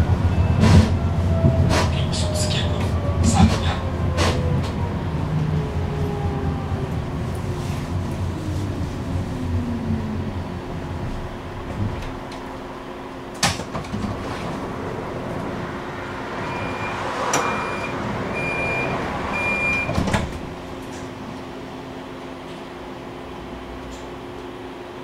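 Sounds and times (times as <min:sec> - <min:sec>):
door warning beeps: 0:16.4 - 0:20.3.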